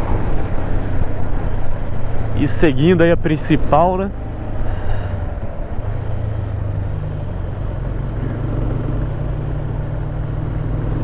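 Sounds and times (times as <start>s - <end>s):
motorcycle engine cruising: 0.0s - 11.0s
wind and road noise: 0.0s - 11.0s.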